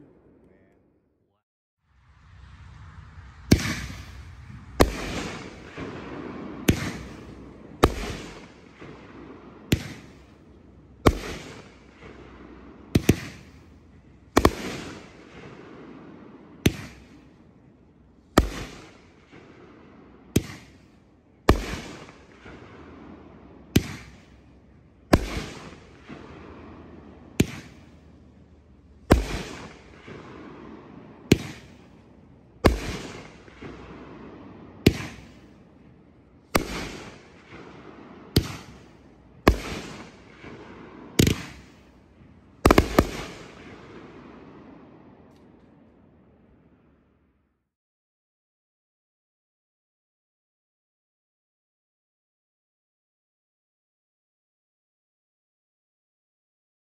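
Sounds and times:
fireworks bangs: 2.0s - 46.4s.

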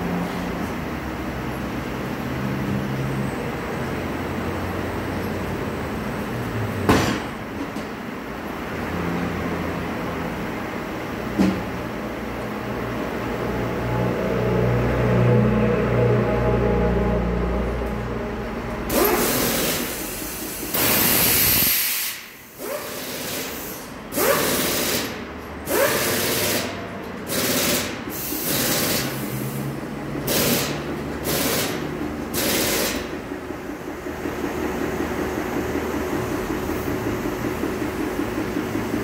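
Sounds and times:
compressed air hisses: 18.9s - 23.9s.

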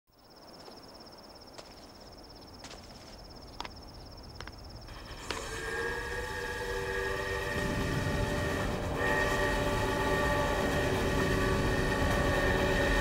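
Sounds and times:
insects chirring: 0.1s - 8.5s
sharp footsteps: 1.5s - 5.5s
steam locomotive whistle: 4.9s - 13.0s.

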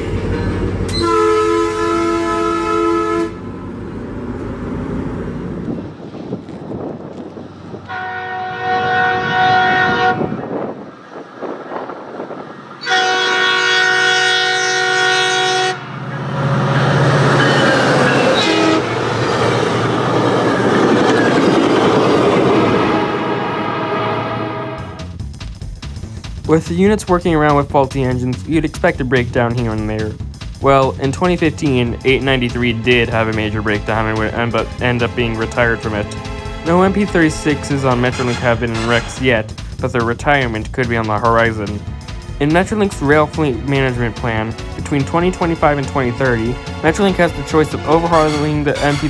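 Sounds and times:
train passing rumble: 0.0s - 49.0s
locomotive air horn chords: 0.9s - 3.8s, 7.8s - 10.6s, 12.8s - 16.0s, 17.4s - 19.0s, 22.6s - 25.2s, 34.6s - 39.4s, 45.4s - 49.0s
low engine hum: 3.3s - 7.9s.

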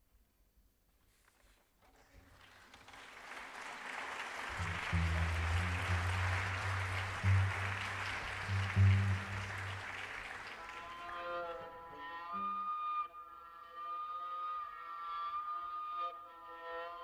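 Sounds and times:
audience applause: 2.0s - 11.5s
low held music notes: 4.5s - 17.0s.

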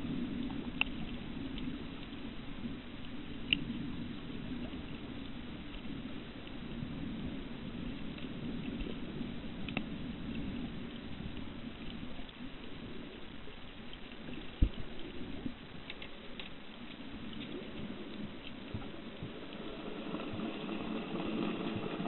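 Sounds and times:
faint ticks: 0.0s - 22.0s
water washing: 17.2s - 22.0s.

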